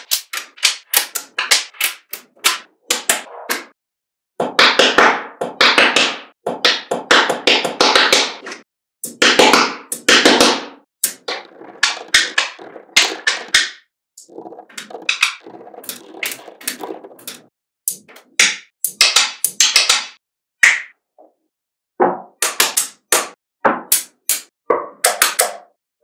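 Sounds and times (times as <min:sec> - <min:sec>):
magnetic balls clicking: 0:11.0 - 0:20.2.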